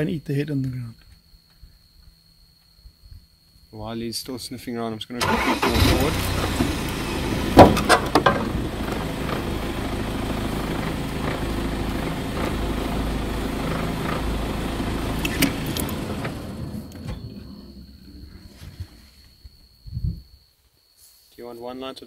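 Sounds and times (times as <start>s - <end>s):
vehicle engine running: 5.5s - 18.8s.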